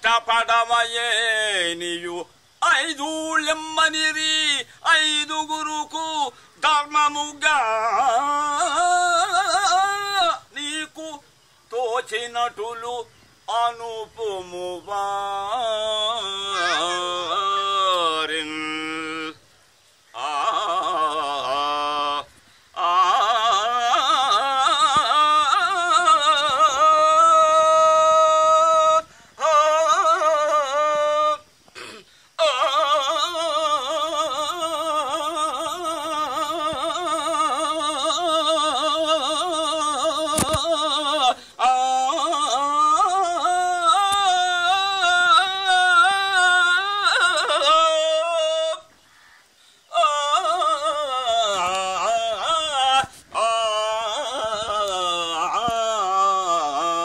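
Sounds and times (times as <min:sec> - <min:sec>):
man singing long held notes: 0:00.0 - 0:57.0.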